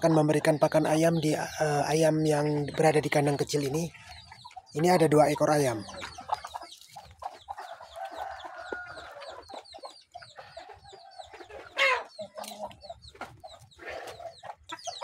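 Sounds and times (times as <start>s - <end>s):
chickens clucking: 0.0s - 15.0s
loud chicken call: 11.4s - 12.1s.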